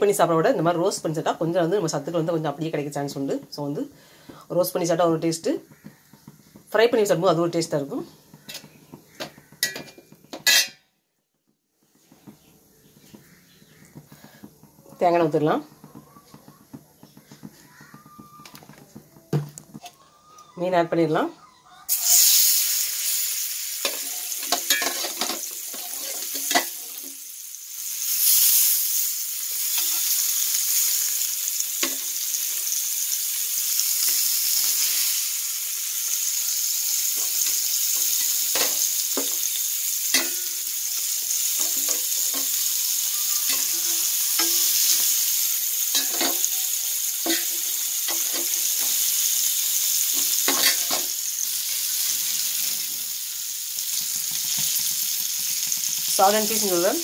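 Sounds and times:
fish sizzling in oil: 0.0 - 10.8, 12.0 - 19.0, 21.7 - 57.0
metal utensils tapping griddle: 8.4 - 10.8, 23.8 - 27.1, 31.8 - 32.1, 37.1 - 39.5, 40.1 - 40.7, 41.4 - 45.2, 45.9 - 46.6, 47.2 - 49.1, 50.1 - 51.2, 54.0 - 56.1.

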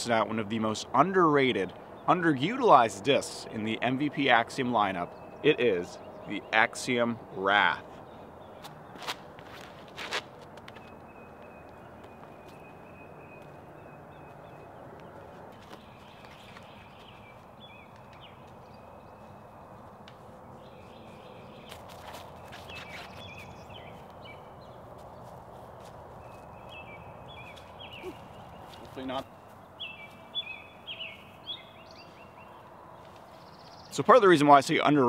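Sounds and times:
high thin animal calls: 27.9 - 28.3.

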